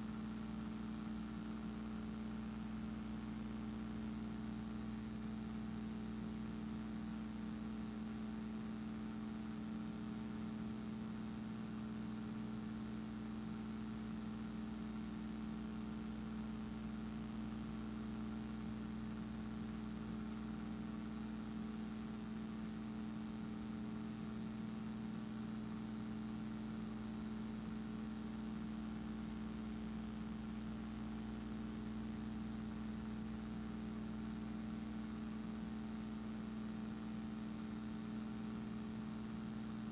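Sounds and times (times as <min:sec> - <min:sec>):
steady machine hum: 0:07.0 - 0:39.9.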